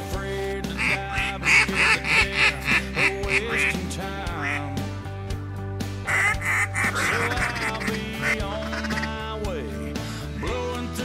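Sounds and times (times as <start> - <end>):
background music: 0.0 - 11.0
duck call quacks: 0.7 - 4.8, 6.1 - 9.2.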